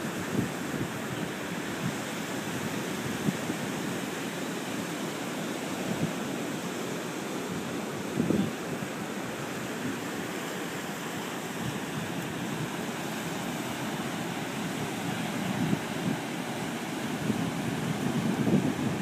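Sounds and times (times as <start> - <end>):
wind buffeting microphone: 0.0 - 4.0, 7.4 - 8.9, 11.5 - 19.0
ocean surf washing: 0.0 - 19.0.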